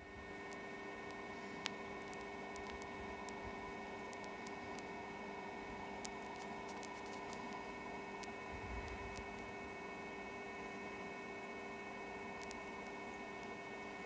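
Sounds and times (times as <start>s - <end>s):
faint ticks and clicks: 0.0s - 9.5s, 12.3s - 13.6s
electrical hum with tones: 0.0s - 14.0s.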